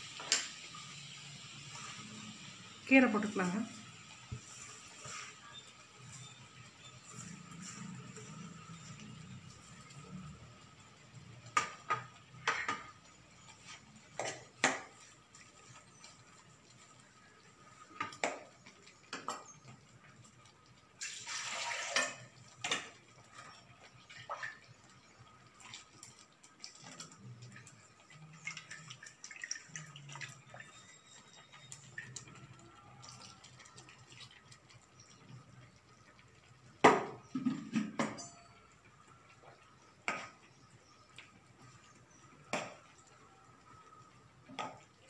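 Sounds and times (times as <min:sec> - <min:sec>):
liquid sloshing and dripping: 0:21.0 - 0:38.2.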